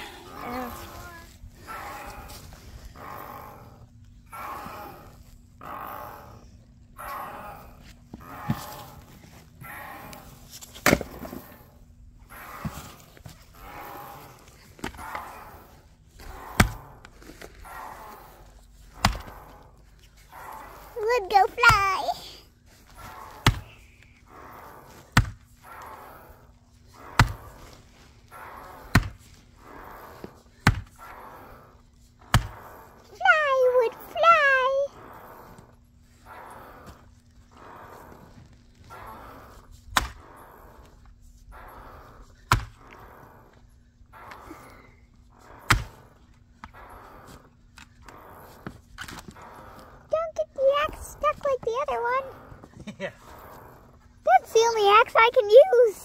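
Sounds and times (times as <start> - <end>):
axe chopping wood: 10.8 - 11.3, 19.0 - 19.3, 23.4 - 23.7, 25.2 - 25.4, 27.2 - 27.4, 28.9 - 29.2, 30.6 - 30.9, 32.3 - 32.6, 40.0 - 40.2, 42.5 - 42.8, 45.7 - 46.0
axe striking wood: 23.4 - 23.6, 45.7 - 45.9.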